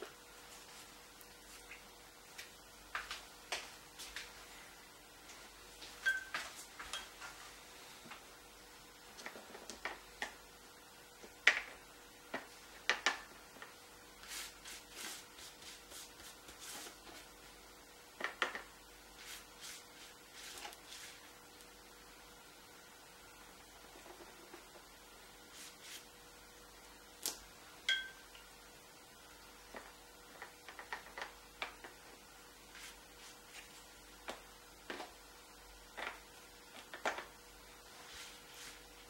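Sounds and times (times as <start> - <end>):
faint steady hum: 0.0 - 39.0
brush swishes on wet paper: 14.2 - 17.4, 19.1 - 21.4, 25.4 - 26.1, 32.7 - 33.9, 37.9 - 39.0.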